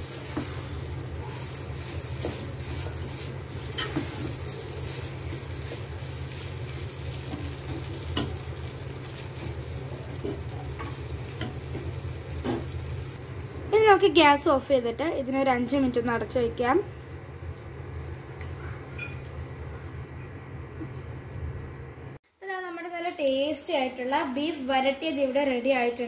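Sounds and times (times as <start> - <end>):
meat sizzling in oil: 0.0 - 14.3
spatula scraping pot: 0.2 - 6.5.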